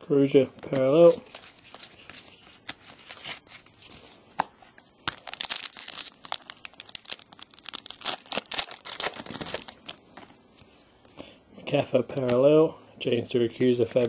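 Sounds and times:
wrapper tearing and crinkling: 5.0 - 10.0.

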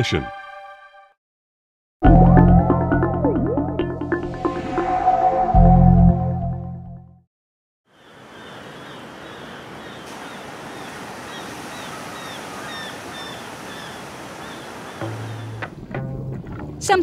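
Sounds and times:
ocean surf: 8.1 - 15.5.

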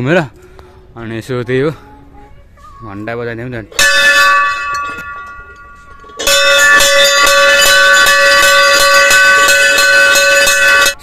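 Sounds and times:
brass bell ringing: 3.7 - 11.0.

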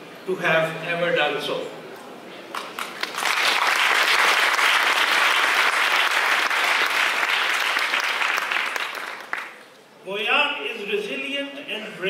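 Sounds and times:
audience applauding: 2.5 - 9.7.

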